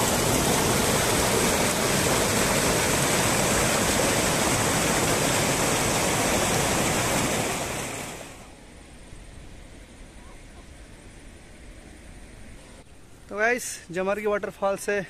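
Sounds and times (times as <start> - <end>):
flowing water rushing: 0.0 - 8.6.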